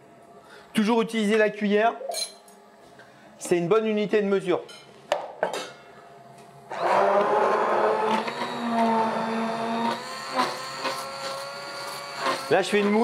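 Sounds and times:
immersion blender whirring: 6.7s - 13.0s.

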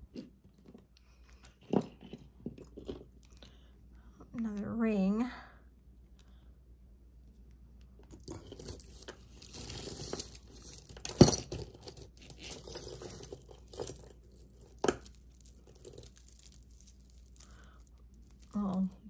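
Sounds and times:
jewelry rustling and clinking: 0.0s - 3.5s, 8.0s - 19.0s.

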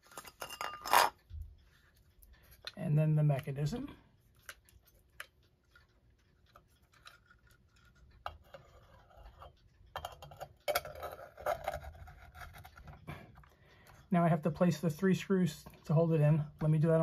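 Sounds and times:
faint clicks and taps: 1.2s - 14.1s.

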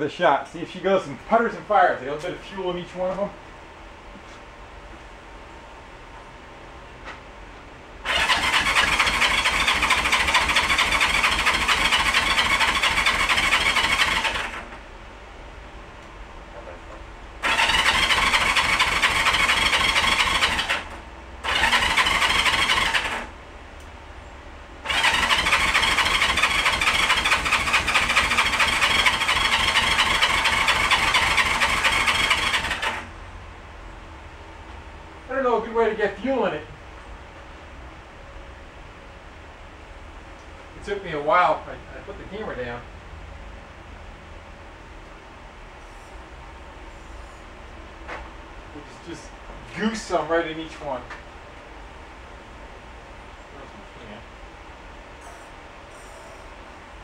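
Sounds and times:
electric starter cranking engine: 8.0s - 14.8s, 17.4s - 23.3s, 24.8s - 33.1s.

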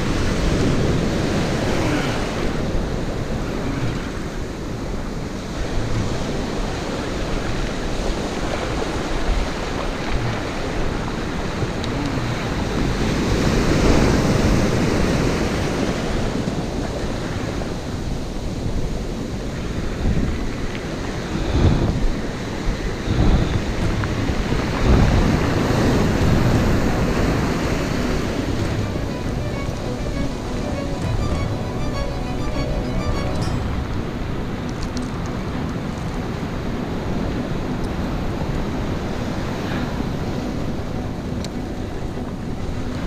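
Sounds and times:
wind buffeting the microphone: 0.0s - 31.6s
surf breaking on a beach: 0.0s - 43.0s.

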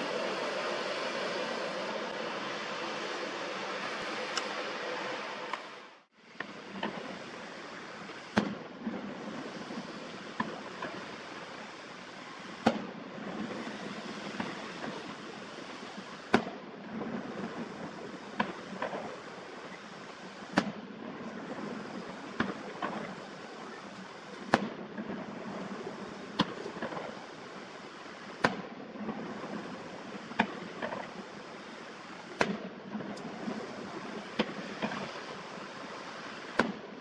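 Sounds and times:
steady background rush: 0.0s - 37.0s
fireworks bangs: 6.4s - 37.0s
faint firework pops: 8.1s - 8.6s, 10.4s - 11.0s, 12.6s - 12.9s, 13.5s - 15.1s, 16.3s - 16.6s, 18.3s - 19.2s, 20.5s - 20.8s, 22.3s - 23.2s, 24.4s - 25.1s, 26.3s - 27.2s, 28.4s - 29.4s, 30.2s - 31.2s, 32.3s - 33.4s, 34.2s - 35.3s, 36.5s - 36.8s.

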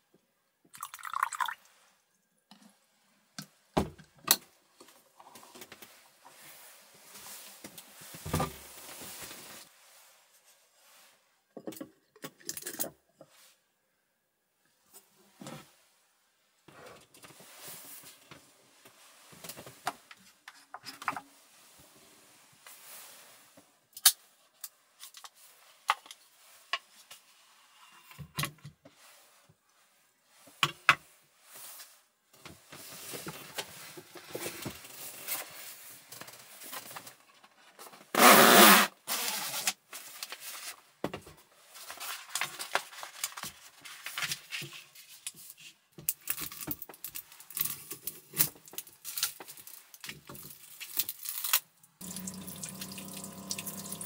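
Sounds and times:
paper and cardboard rustling: 39.4s - 51.4s
water running at sink: 52.0s - 54.0s.

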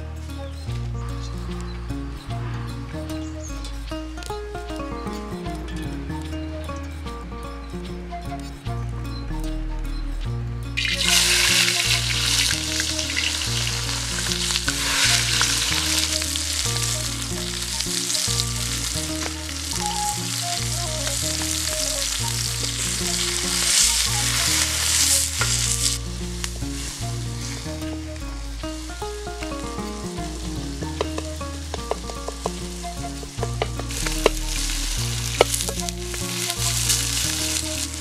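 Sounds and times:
background music with low notes: 0.0s - 38.0s
food sizzling in hot oil: 10.8s - 28.0s, 28.7s - 38.0s.

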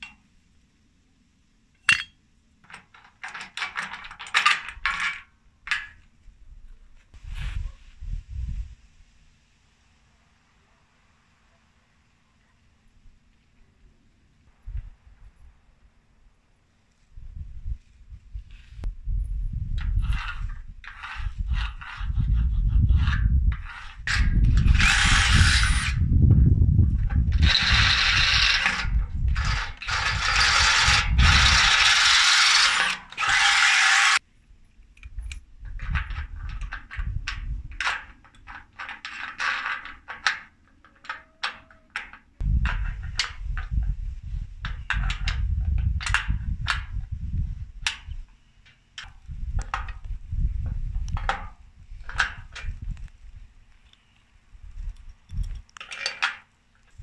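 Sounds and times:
metal parts clicking and knocking: 1.8s - 6.1s, 34.9s - 43.8s, 51.1s - 52.8s, 55.0s - 57.0s
cordless drill boring into steel: 23.7s - 26.0s, 27.3s - 34.2s.

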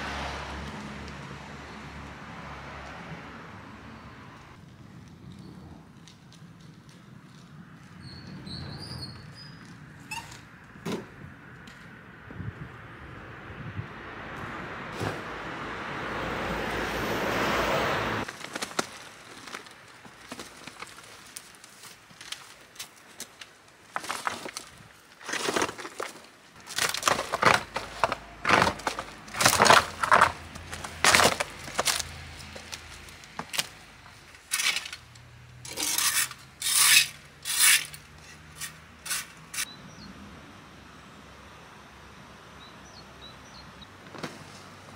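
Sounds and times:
rotten wood cracking underfoot: 18.2s - 35.8s
garden tool scraping soil: 35.6s - 39.7s.

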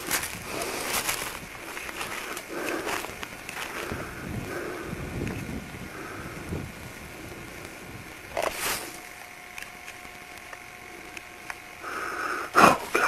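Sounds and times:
camcorder handling rustle: 8.3s - 11.6s.

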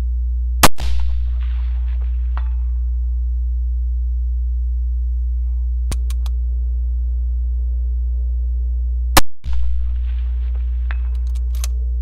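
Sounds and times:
steady low hum: 0.0s - 12.0s
quick sharp clicks: 5.9s - 6.4s.

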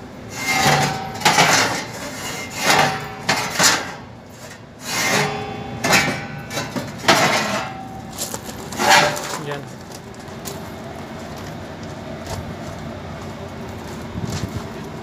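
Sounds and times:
metal damper blades scraping: 0.3s - 9.6s.

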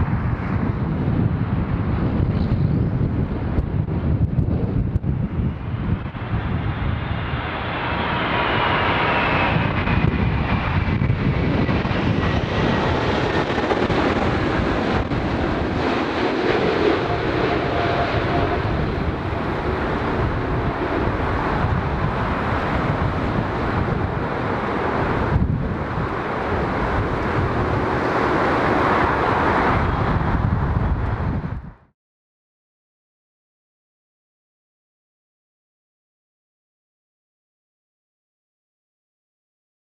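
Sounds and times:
jet engine whine: 0.0s - 31.9s
jet rumble: 0.0s - 31.9s
wind on microphone: 0.0s - 31.9s.

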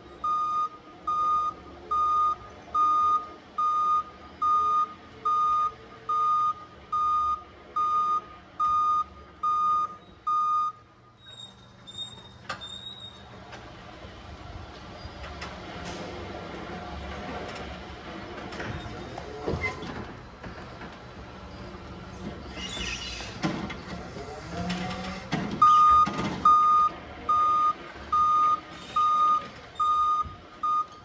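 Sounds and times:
forklift reversing alarm beeping: 0.1s - 13.2s, 25.6s - 31.0s.

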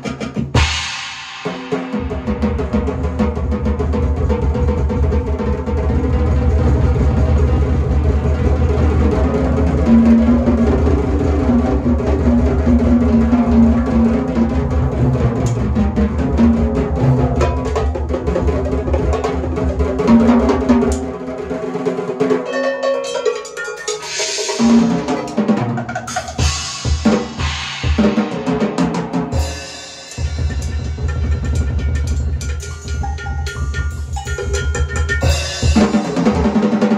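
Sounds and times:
drum kit played hard: 0.0s - 36.9s
cymbal crashes: 0.6s - 3.0s, 23.9s - 36.8s.

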